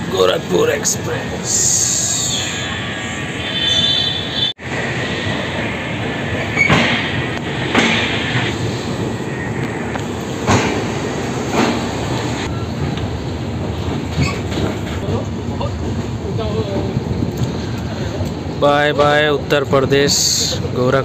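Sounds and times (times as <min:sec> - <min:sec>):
train wheels rumbling: 0:00.0 - 0:21.0
wheels clacking over rail joints: 0:06.4 - 0:19.9.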